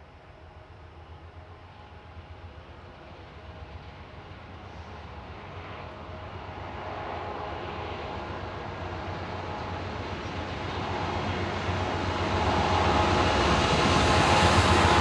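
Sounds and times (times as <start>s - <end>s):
diesel locomotive engine drone: 0.0s - 15.0s.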